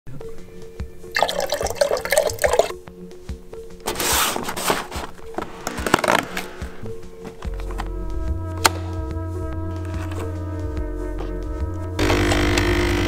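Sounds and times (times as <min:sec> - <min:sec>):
intro music with low beat: 0:05.8 - 0:12.0.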